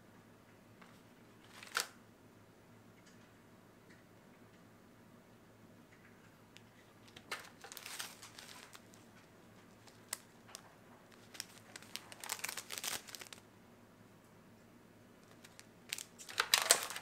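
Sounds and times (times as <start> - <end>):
foil and plastic packaging crinkling: 1.4 - 2.0, 7.0 - 13.4, 15.2 - 17.0.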